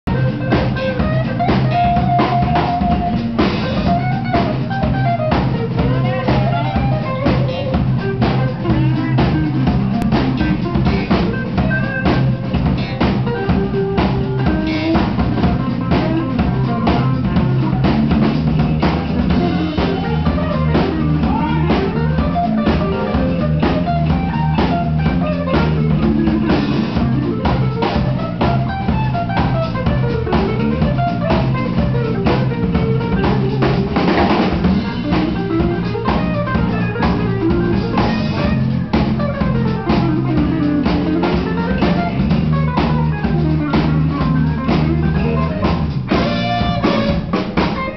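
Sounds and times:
drum kit beat: 0.0 - 47.9
electric bass line: 0.0 - 47.9
guitar melody: 0.1 - 47.9.

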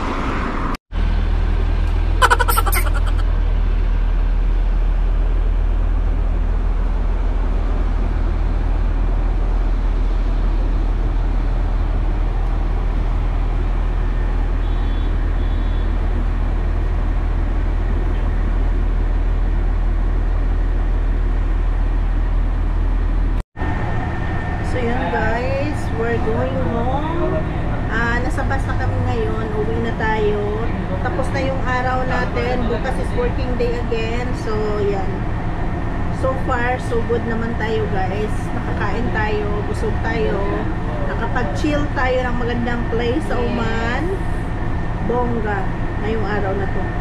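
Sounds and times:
bus engine idling: 1.0 - 47.0.

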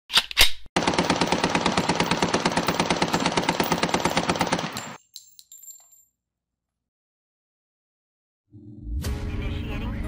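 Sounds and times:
machine gun firing rapid burst: 0.8 - 5.0
metallic clinks of falling casings: 4.7 - 6.2.

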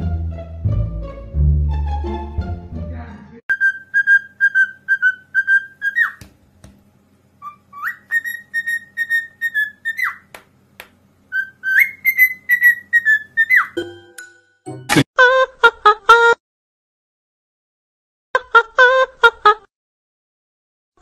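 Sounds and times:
cockatiel whistling: 3.5 - 6.2, 7.4 - 10.3, 11.3 - 13.8.

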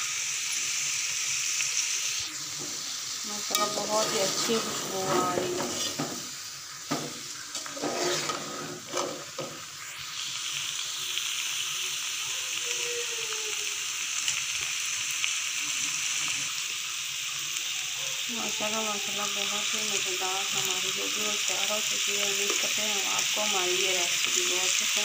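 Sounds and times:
curry sizzling: 0.0 - 25.0
metal spoon scraping pot: 3.5 - 6.2, 7.5 - 9.4.

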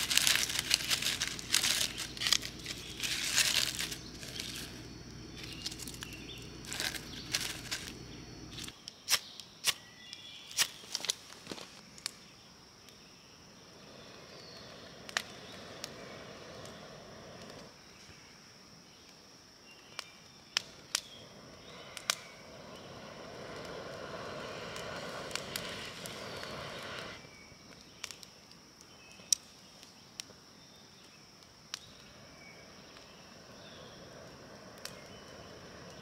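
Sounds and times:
dry bark crinkling: 0.0 - 9.2, 10.5 - 12.3
faint fire crackling: 0.0 - 36.0.

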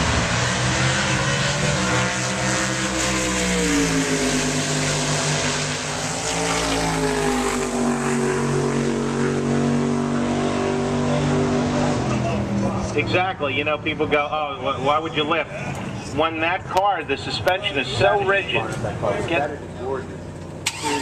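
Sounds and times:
drag car engine running: 19.6 - 21.0.

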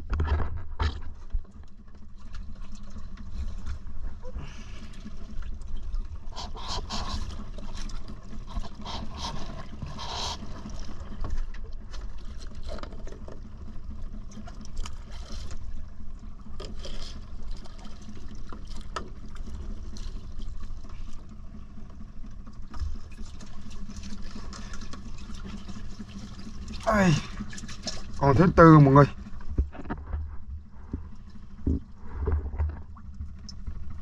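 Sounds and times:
low machinery hum: 0.0 - 34.0
water splashing and trickling: 1.4 - 34.0.

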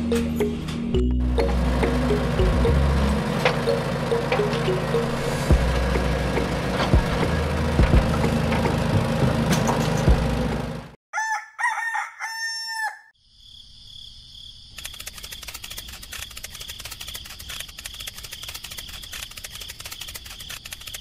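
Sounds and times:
rooster crowing: 11.1 - 13.2.

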